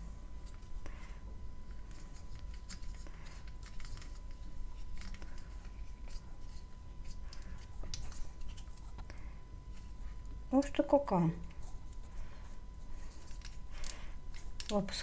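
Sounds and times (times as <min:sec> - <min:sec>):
faint high whine: 0:00.0 - 0:15.0
syringe plunger clicks and rustles: 0:01.7 - 0:10.3, 0:12.9 - 0:15.0.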